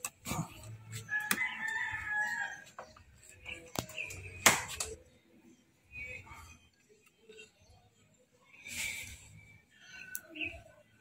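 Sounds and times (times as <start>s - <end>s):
rooster crowing: 1.1s - 2.7s.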